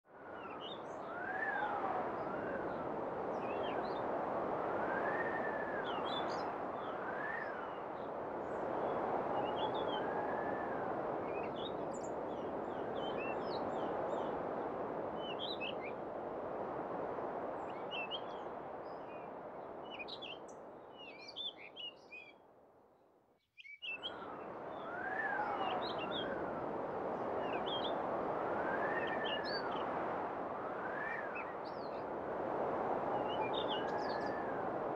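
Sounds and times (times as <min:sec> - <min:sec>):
wind blowing: 0:24.2 - 0:34.9.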